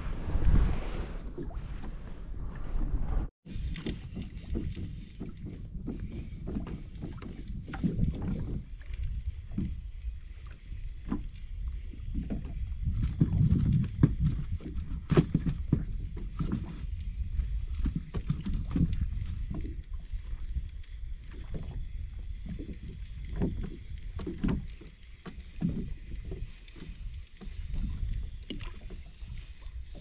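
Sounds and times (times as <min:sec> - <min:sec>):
water slapping against kayak hull: 0:03.4 - 0:19.9.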